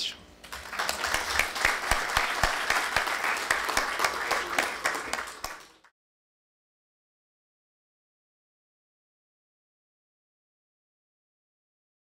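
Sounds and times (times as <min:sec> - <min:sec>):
audience applauding: 0:00.4 - 0:05.9.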